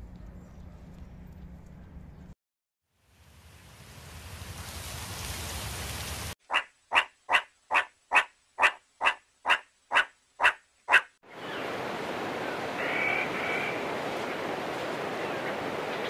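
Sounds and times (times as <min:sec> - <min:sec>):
short sharp animal calls: 0:06.5 - 0:11.1.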